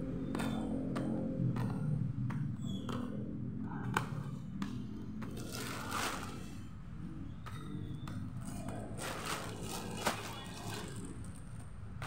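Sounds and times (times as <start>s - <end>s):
plastic bag rustling: 5.5s - 6.4s, 9.0s - 11.3s.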